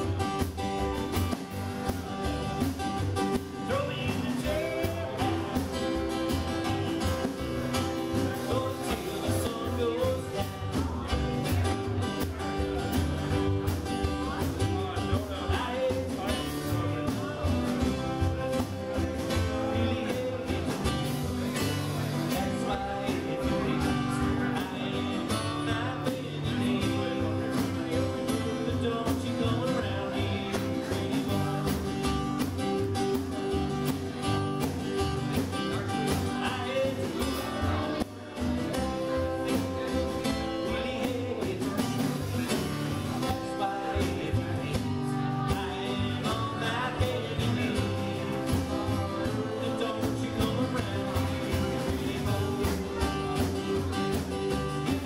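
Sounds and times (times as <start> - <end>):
acoustic guitars strummed: 0.0 - 55.0
drums keeping a steady beat: 0.0 - 55.0.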